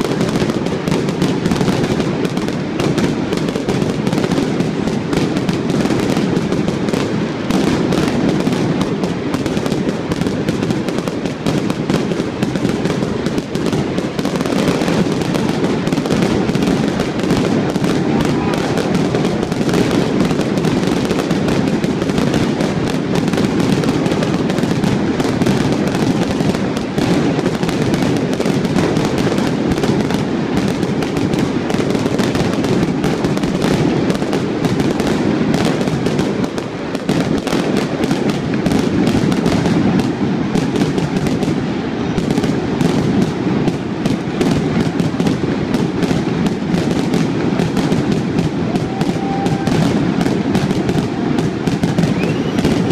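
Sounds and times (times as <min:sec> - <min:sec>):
fireworks bangs and crackling: 0:00.0 - 0:52.9.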